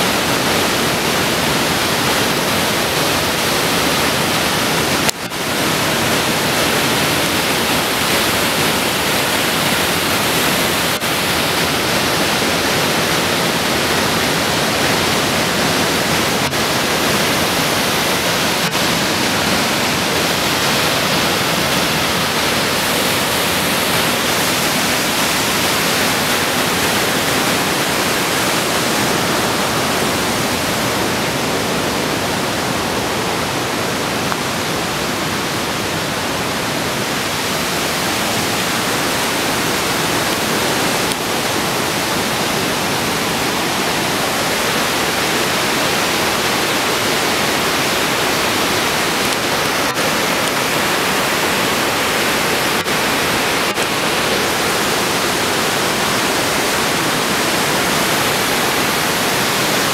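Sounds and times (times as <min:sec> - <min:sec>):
waterfall roaring over rock: 0:00.0 - 0:59.9.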